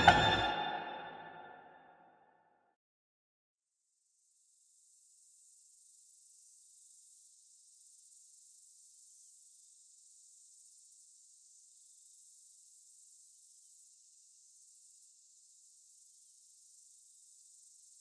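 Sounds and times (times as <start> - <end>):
faint high-pitched hiss: 3.8 - 18.0.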